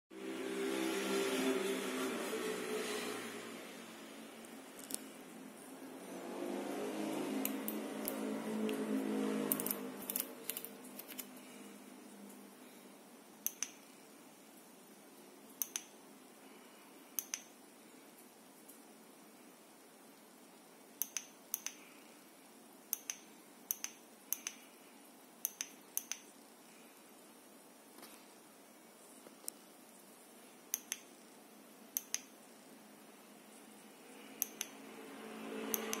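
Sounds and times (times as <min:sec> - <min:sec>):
low hum: 0:00.2 - 0:15.0
paired sharp clicks: 0:13.4 - 0:13.8, 0:15.6 - 0:15.9, 0:17.2 - 0:17.5, 0:21.0 - 0:21.8, 0:22.9 - 0:24.6, 0:25.4 - 0:26.2, 0:30.7 - 0:31.1, 0:32.0 - 0:32.3, 0:34.4 - 0:34.7.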